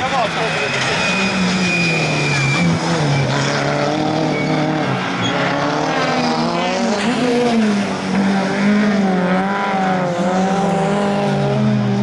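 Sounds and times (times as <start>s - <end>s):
high tyre squeal: 0.0s - 8.2s
rally car engine revving: 0.0s - 12.0s.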